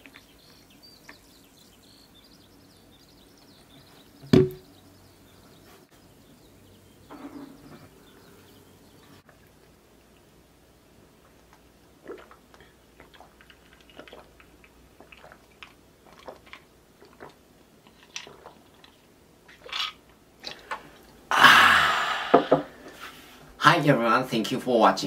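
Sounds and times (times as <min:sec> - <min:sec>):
glass knocked onto table: 0:04.3 - 0:04.6
swallowing gulps: 0:11.1 - 0:19.7, 0:20.4 - 0:22.8
breathy exhale: 0:20.8 - 0:23.4.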